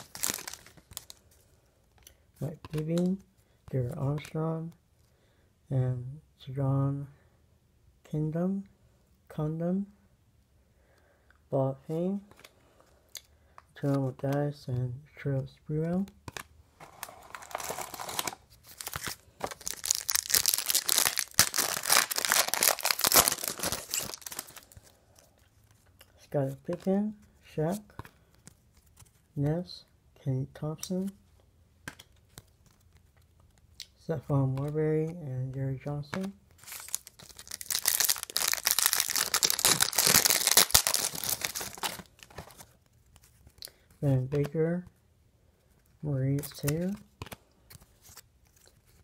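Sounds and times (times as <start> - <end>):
wrapper being torn and crinkled: 0.0 - 1.2, 17.2 - 24.8, 36.6 - 42.7.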